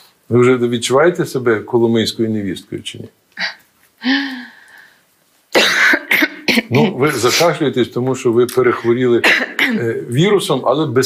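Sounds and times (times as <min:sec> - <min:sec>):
woman clearing throat: 0:05.6 - 0:07.0, 0:09.2 - 0:09.9
woman coughing: 0:05.6 - 0:07.0, 0:09.2 - 0:09.9.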